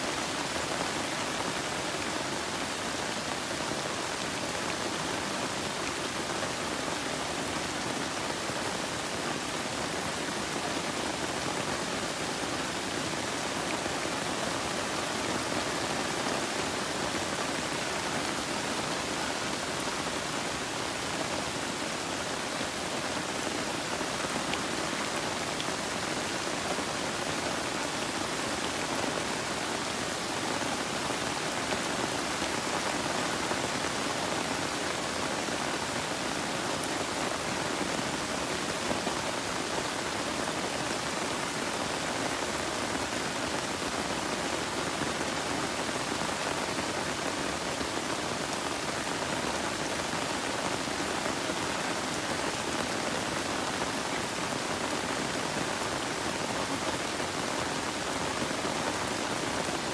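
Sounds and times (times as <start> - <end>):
rain on leaves: 0.0 - 59.9.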